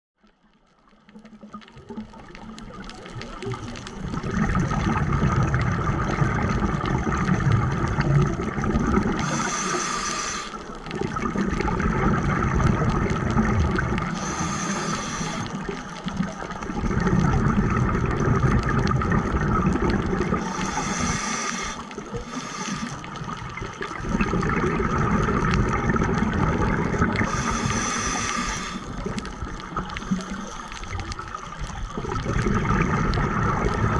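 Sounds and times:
exhaled air bubbling underwater: 0.2s - 33.9s
regulator hissing: 9.2s - 10.7s, 14.1s - 15.7s, 20.4s - 23.1s, 27.2s - 29.2s.

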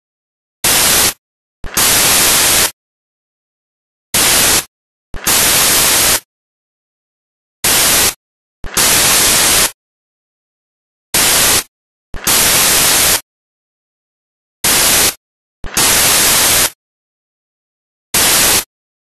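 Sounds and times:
white-noise static bursts: 0.6s - 2.8s, 4.2s - 6.3s, 7.6s - 9.8s, 11.2s - 13.2s, 14.6s - 16.8s, 18.2s - 18.7s.

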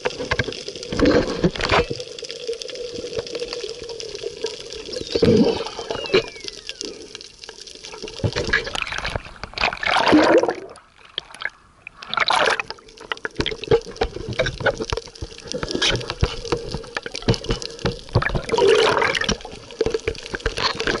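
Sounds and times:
crackling bubble clicks: 0.0s - 21.0s
water sloshing and rushing: 7.9s - 21.0s.

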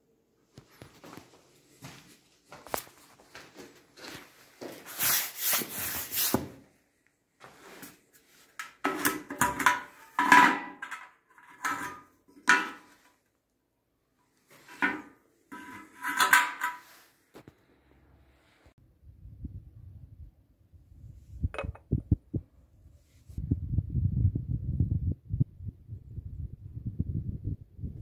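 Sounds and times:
rubbing and scraping on metal: 8.8s - 13.1s, 14.5s - 17.1s.

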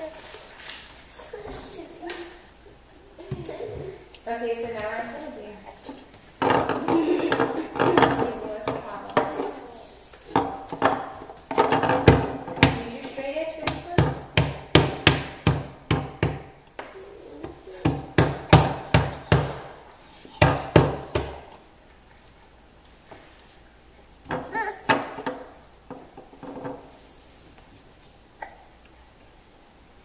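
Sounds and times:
baby banging on wooden table: 6.4s - 9.4s, 10.3s - 13.0s, 17.4s - 19.8s, 20.4s - 21.4s, 24.3s - 26.9s.

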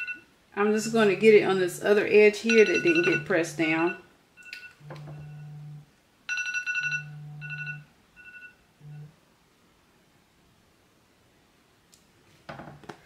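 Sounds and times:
phone alarm high beeps: 0.0s - 0.2s, 2.5s - 5.6s, 6.3s - 9.1s
low buzz: 4.8s - 5.9s, 8.8s - 9.1s.

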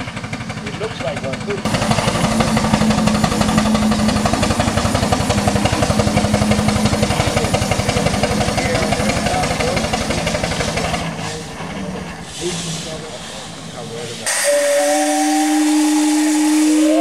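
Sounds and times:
steam engine running: 0.0s - 17.0s.

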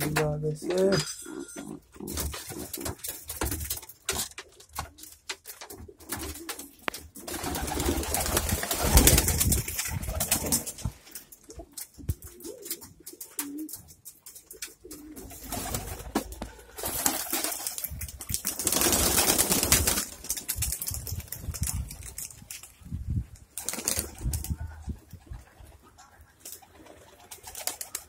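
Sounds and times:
wings flapping: 2.1s - 28.0s
pigeons cooing: 11.4s - 17.4s.

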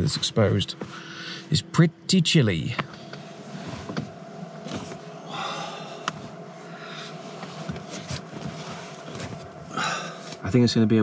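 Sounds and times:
fridge and heater humming: 0.0s - 11.0s
bedding rustling: 3.1s - 10.4s.

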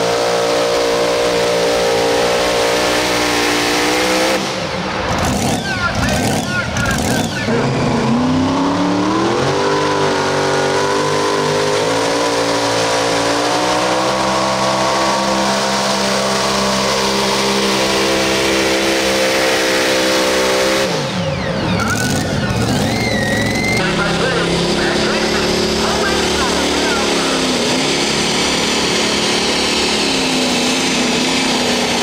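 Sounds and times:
tractor engine revving: 0.0s - 32.0s.

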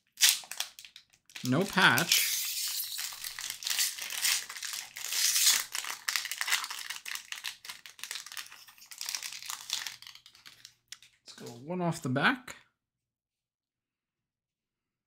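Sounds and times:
paper rustling and crinkling: 0.4s - 11.6s.

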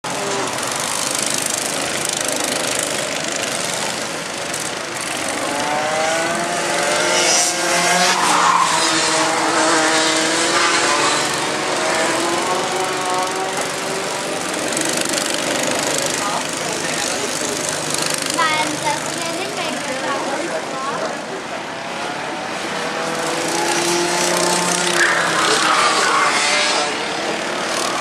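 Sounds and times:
go-kart engines revving: 0.0s - 28.0s
noisy background: 11.0s - 28.0s.

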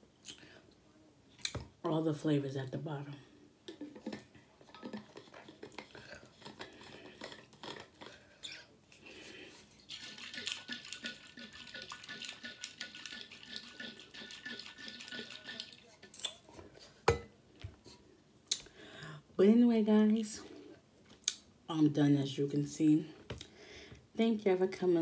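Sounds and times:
liquid sloshing in metal bottle: 9.8s - 16.1s.

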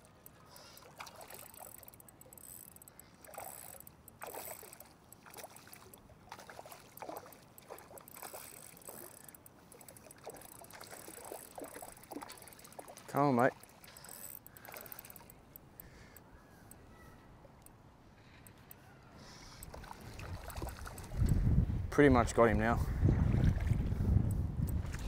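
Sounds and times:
shallow water splashing: 0.0s - 2.4s, 3.0s - 15.5s, 19.4s - 21.4s, 23.1s - 24.0s.

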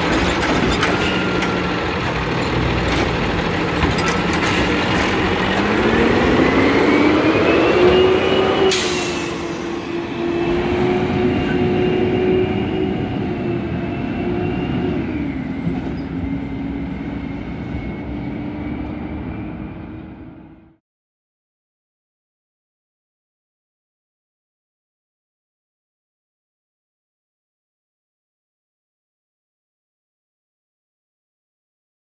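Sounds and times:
garbage truck diesel engine: 0.0s - 20.8s.

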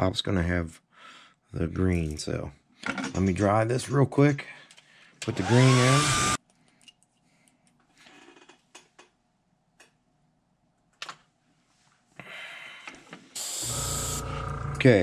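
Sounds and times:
hair dryer blowing: 5.2s - 6.4s, 13.4s - 14.3s
airbrush spraying hiss: 13.4s - 14.2s.

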